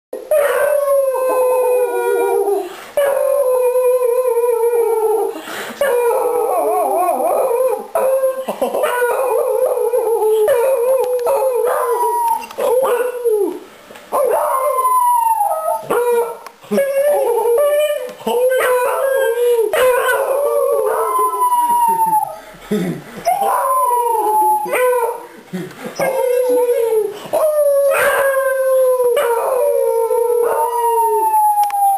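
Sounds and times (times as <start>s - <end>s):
dogs howling: 0.2s - 22.4s, 23.2s - 25.3s, 26.0s - 31.9s
man howling: 14.2s - 22.4s, 23.3s - 25.3s, 26.0s - 31.9s.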